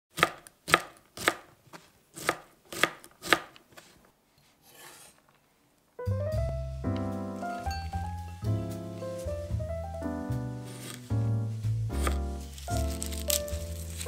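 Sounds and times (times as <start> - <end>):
knife chopping on cutting board: 0.2 - 1.4, 2.2 - 3.6, 11.9 - 14.0
music: 6.0 - 14.0.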